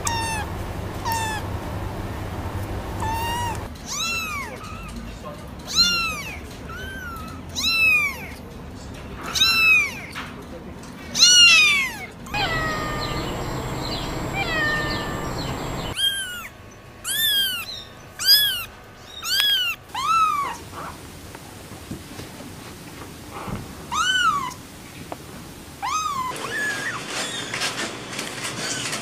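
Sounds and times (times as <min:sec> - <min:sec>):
kittens meowing: 0:00.0 - 0:05.0, 0:11.2 - 0:20.6.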